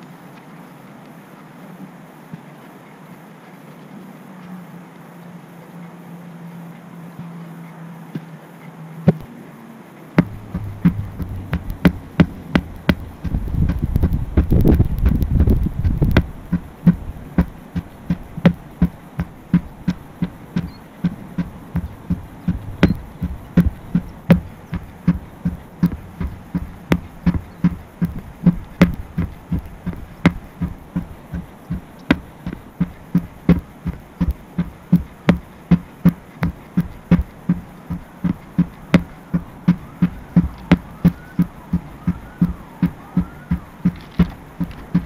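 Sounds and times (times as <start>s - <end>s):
hammer thudding on rubber tire: 10.2s - 45.0s.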